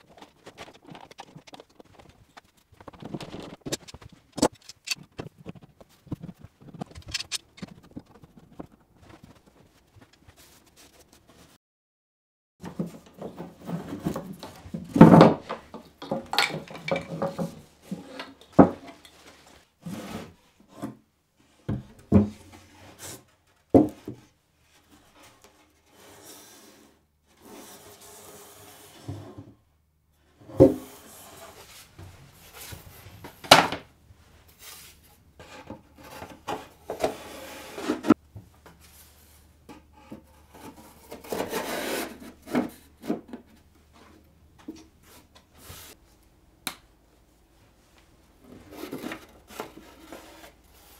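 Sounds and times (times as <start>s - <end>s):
boards rubbing and sliding: 34.6s - 38.2s.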